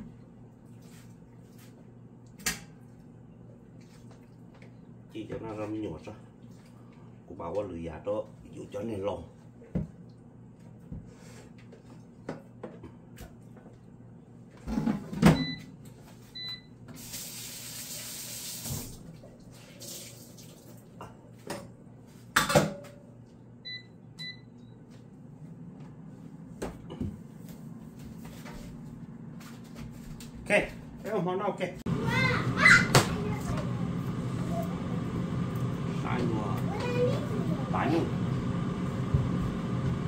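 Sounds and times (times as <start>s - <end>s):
short electronic appliance beeps: 15.4s - 15.7s, 16.4s - 16.7s, 23.6s - 24.8s
steady low hum: 23.2s - 40.0s.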